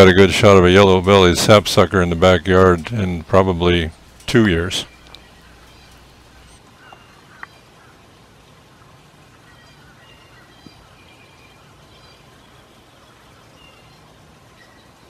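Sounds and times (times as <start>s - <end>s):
faint bird chirps: 3.9s - 8.0s, 9.4s - 15.0s.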